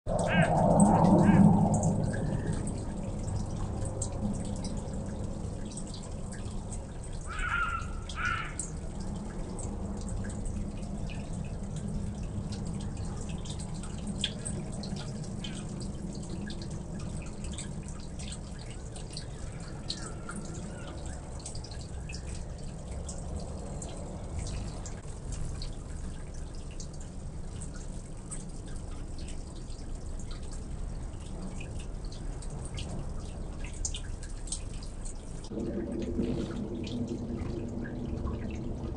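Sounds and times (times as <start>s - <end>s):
steady low rumble: 0.1s - 7.1s, 34.2s - 38.9s.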